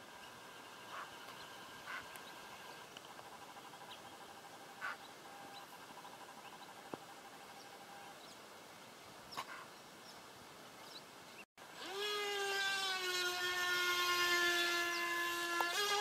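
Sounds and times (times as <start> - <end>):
faint steady hiss: 0.0 - 11.8.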